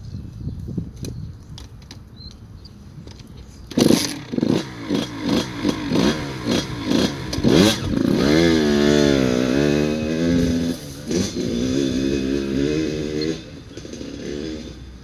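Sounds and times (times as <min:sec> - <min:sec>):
dirt bike engine revving: 0:03.7 - 0:15.0.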